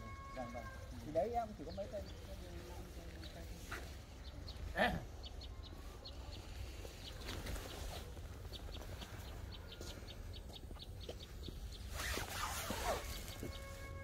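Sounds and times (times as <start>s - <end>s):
birds chirping: 0.0s - 14.0s
brushing noise: 11.7s - 14.0s.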